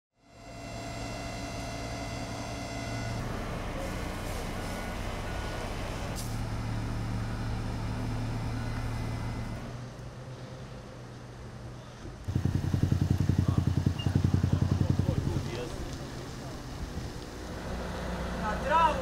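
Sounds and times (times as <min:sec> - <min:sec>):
short beeps: 0:00.2 - 0:03.2
fire engine running: 0:00.2 - 0:19.0.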